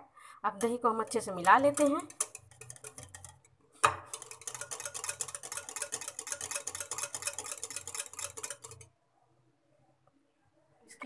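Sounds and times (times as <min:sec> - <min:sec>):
whisk scraping glass bowl: 0:00.6 - 0:08.9.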